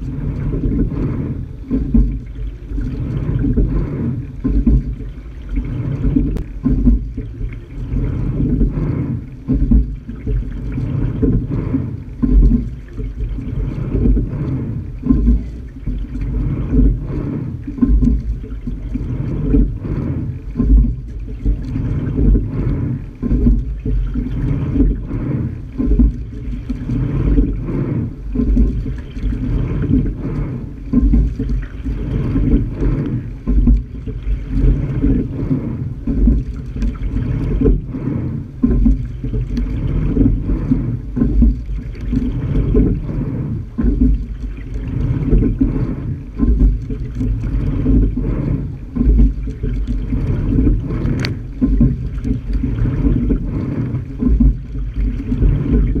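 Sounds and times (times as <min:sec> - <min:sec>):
water rushing along a hull: 0:00.0 - 0:56.0.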